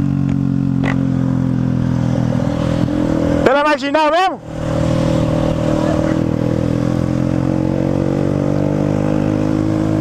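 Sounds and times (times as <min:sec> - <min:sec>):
motorcycle engine cruising: 0:00.0 - 0:10.0
wind rushing past microphone: 0:01.8 - 0:08.1.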